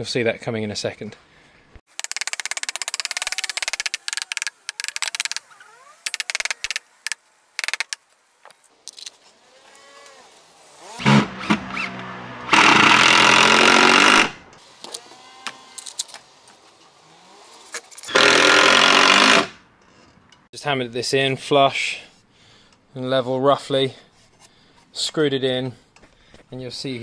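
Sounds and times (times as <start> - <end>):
cordless drill driving a screw: 9.6 - 16.2, 17.4 - 19.5.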